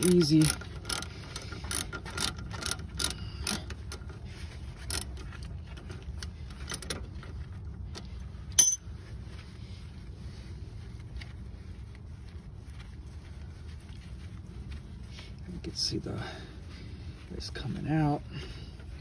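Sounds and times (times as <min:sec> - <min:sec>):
steady low hum: 0:00.0 - 0:19.0
sharp metallic clink: 0:08.6 - 0:08.8.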